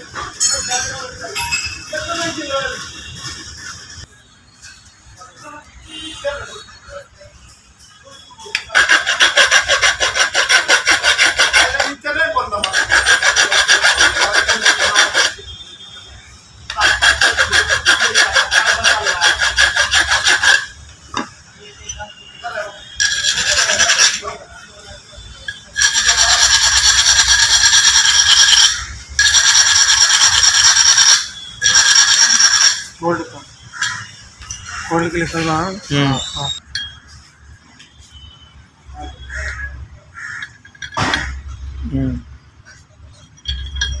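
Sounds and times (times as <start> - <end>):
file scraping metal tube: 8.5 - 15.5, 16.7 - 21.2, 23.0 - 24.4, 25.7 - 32.9.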